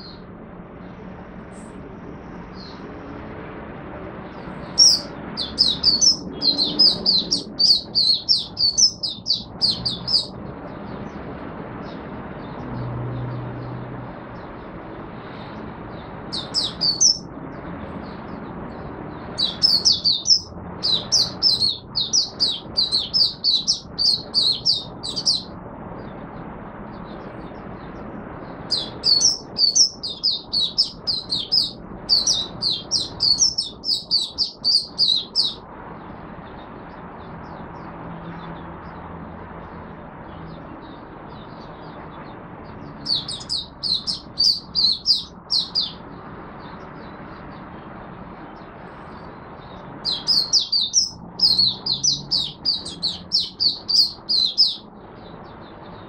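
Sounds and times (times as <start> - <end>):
bird twittering: 4.6 - 10.4, 16.3 - 17.3, 19.4 - 25.5, 28.7 - 35.6, 43.0 - 46.0, 50.0 - 54.9.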